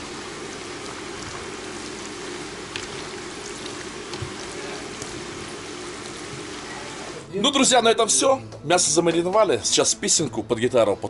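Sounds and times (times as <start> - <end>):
water running from tap: 0.0 - 7.2.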